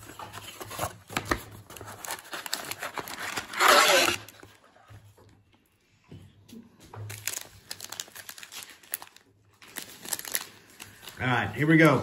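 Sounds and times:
foil packs crinkling: 0.0 - 4.5, 7.1 - 12.0.

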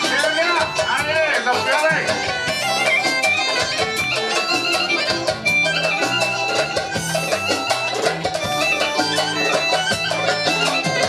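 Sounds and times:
live band playing dance music: 0.0 - 11.0.

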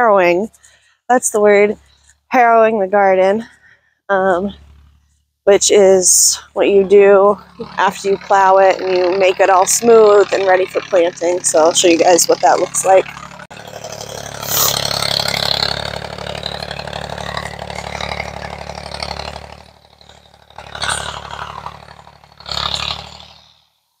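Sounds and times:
tractor engine running: 0.0 - 23.8
short rushes of noise: 14.4 - 14.8.

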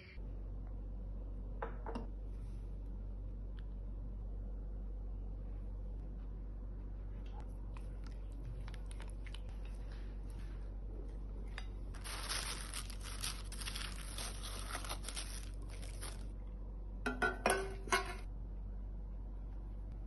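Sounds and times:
steady low hum: 0.0 - 20.0
plastic cling wrap crinkling: 11.9 - 16.4.

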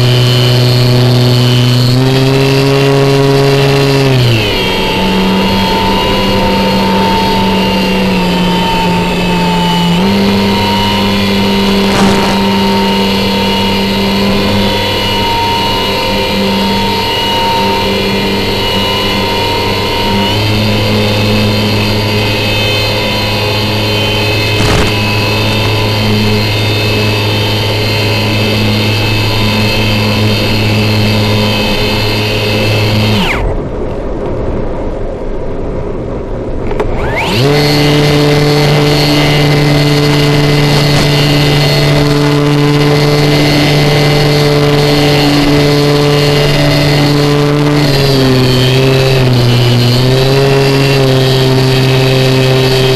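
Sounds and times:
electric motor and propeller: 0.0 - 35.6, 36.4 - 52.9
rushing air: 10.6 - 13.9.

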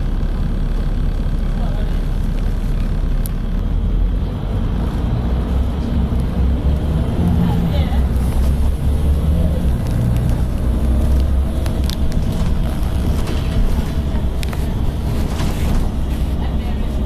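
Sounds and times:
bus diesel engine rumble: 0.0 - 17.0.

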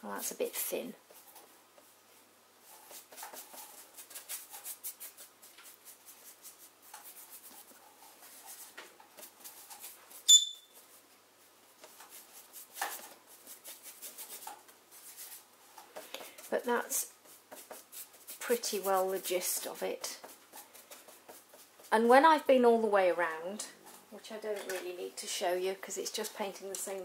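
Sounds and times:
paintbrush scrubbing on board: 2.6 - 10.2, 11.8 - 15.5, 16.3 - 22.1
parrot chirp: 10.3 - 10.7.

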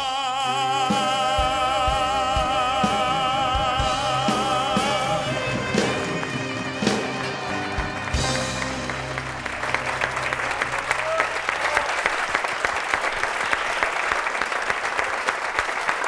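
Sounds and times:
audience applauding: 4.8 - 16.0.

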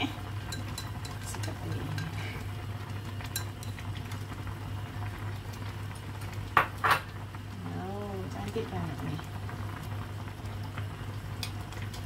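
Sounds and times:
soup simmering in a pot: 0.0 - 12.0
chopsticks stirring soup: 0.1 - 4.4.

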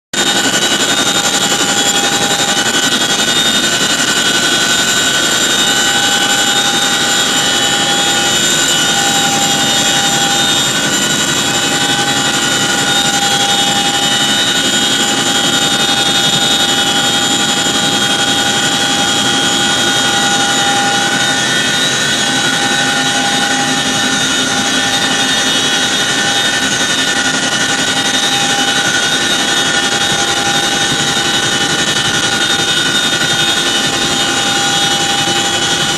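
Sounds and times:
helicopter cabin noise: 0.1 - 35.9
high whining tones: 0.2 - 35.9.

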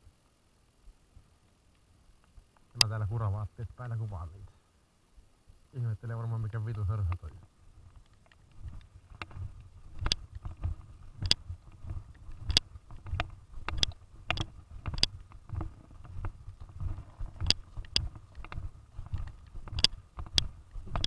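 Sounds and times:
footsteps on wet grass: 7.6 - 21.0
sharp clicks and taps: 7.9 - 21.0.

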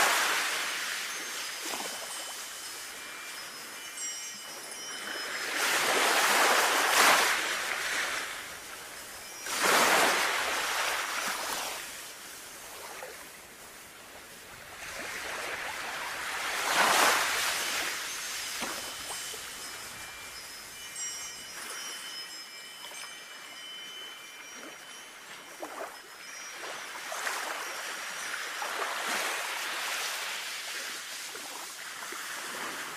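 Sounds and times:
wind chimes ringing: 0.0 - 13.4, 14.8 - 31.1
sea waves washing in: 0.0 - 22.2.

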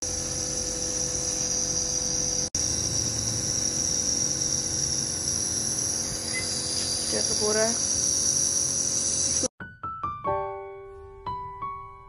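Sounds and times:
nebuliser compressor hissing: 0.0 - 9.5.

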